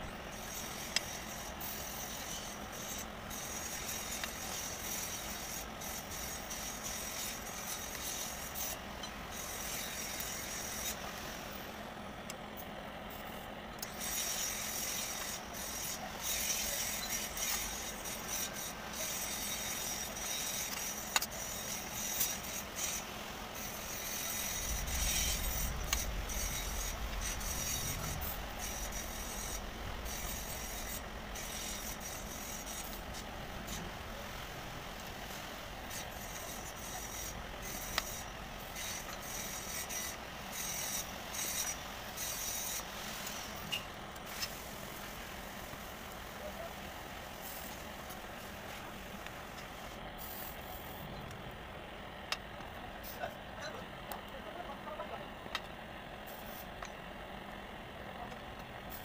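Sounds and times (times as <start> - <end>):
low rumble: 24.2 - 35.0.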